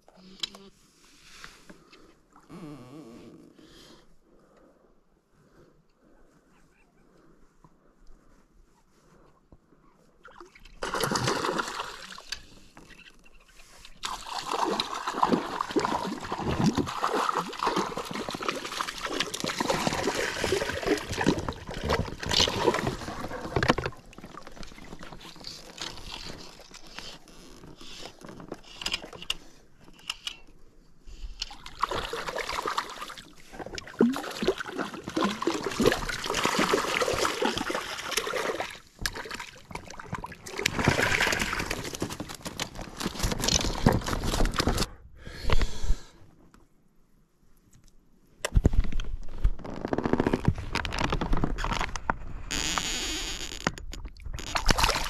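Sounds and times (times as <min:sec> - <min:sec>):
water splashing and sloshing: 0:10.1 - 0:29.3, 0:31.3 - 0:44.9, 0:54.0 - 0:55.0
fish thrashing at surface: 0:14.0 - 0:25.4, 0:40.1 - 0:44.8.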